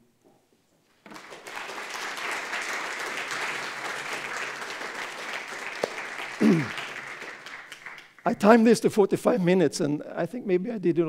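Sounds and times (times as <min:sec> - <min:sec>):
audience applauding: 0:01.1 - 0:08.8.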